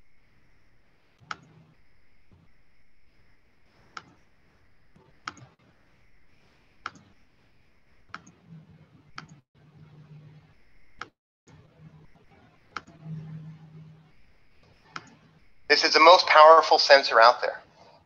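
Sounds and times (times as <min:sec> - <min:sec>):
computer mouse clicking: 0:01.2 - 0:01.7, 0:02.3 - 0:07.3, 0:08.0 - 0:08.4, 0:09.1 - 0:09.4, 0:10.8 - 0:11.2, 0:12.7 - 0:13.0, 0:14.4 - 0:15.3.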